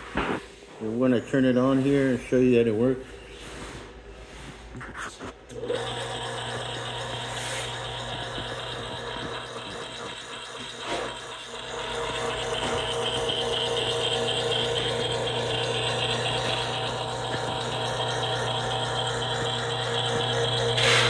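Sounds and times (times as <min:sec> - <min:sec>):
gear motor humming and whining: 0:05.5 - 0:21.0.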